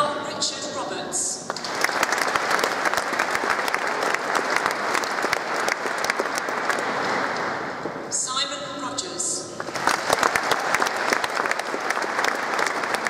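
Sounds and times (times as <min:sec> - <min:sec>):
audience applauding: 0:01.5 - 0:07.7, 0:09.6 - 0:13.0.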